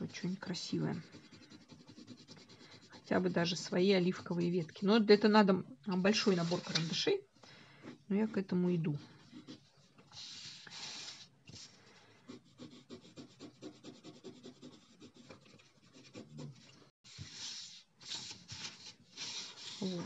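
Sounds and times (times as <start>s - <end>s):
pencil scratching on paper: 0.0s - 5.1s, 7.8s - 20.0s.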